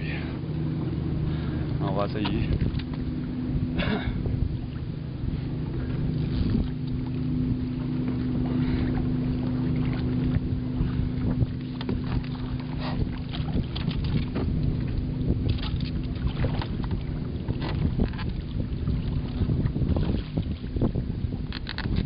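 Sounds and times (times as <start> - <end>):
low motor hum: 0.0 - 22.0
wind noise on microphone: 2.0 - 22.0.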